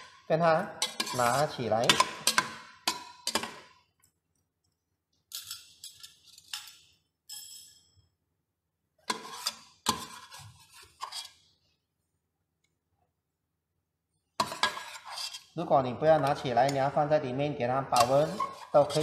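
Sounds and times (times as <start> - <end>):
metal ladle clinking on pot: 0.8 - 3.7, 18.0 - 19.0.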